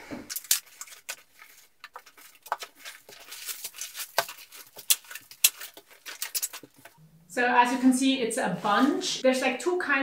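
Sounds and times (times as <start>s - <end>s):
plastic bags crinkling: 0.3s - 7.0s.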